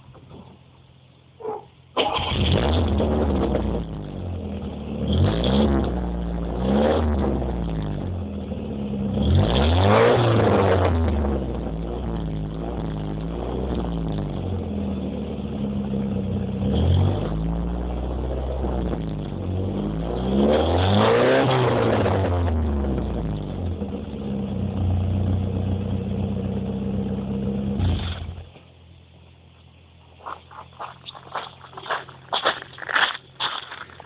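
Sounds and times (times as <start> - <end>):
car engine idling and revving: 0.8 - 32.4.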